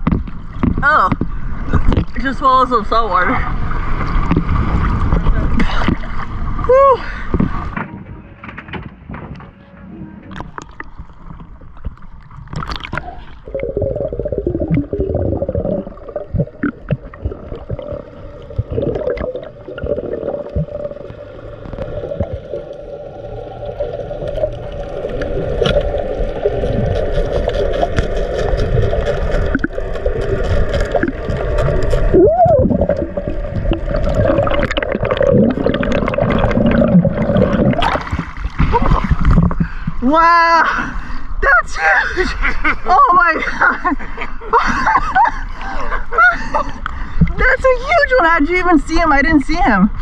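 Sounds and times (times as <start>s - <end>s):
underwater rumble and gurgling: 0.0s - 41.4s, 43.4s - 50.0s.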